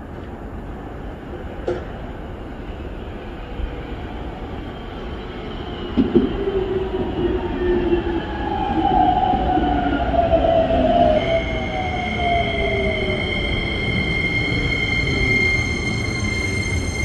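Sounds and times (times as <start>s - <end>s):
electric train rumble: 0.2s - 17.0s
train thump: 1.6s - 2.0s.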